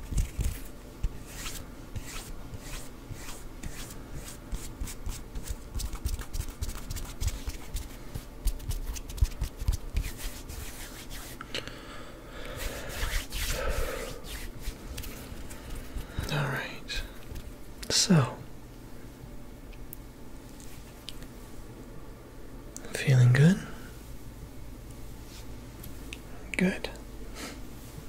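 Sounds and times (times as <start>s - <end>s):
palms rubbing together: 0.0s - 11.4s, 12.4s - 16.3s.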